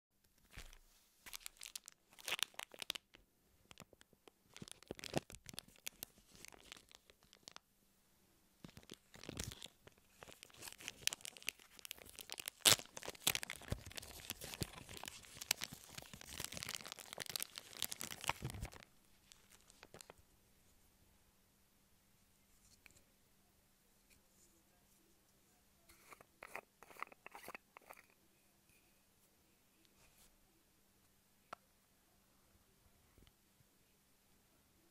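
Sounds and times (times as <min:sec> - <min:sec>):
packaging tearing and crinkling: 0:01.3 - 0:03.1, 0:04.5 - 0:07.6, 0:08.7 - 0:20.1.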